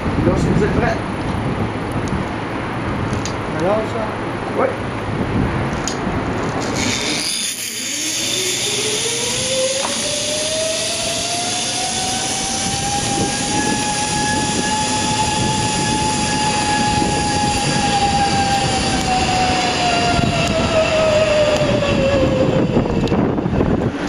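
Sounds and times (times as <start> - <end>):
steady rushing noise: 0.0 - 24.0
zipline pulleys whining on cable: 6.3 - 24.0.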